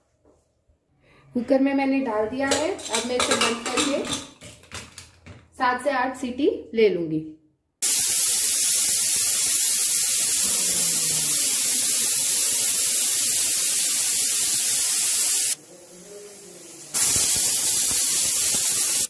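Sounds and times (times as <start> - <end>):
pressure cooker steam hissing: 7.8 - 19.0.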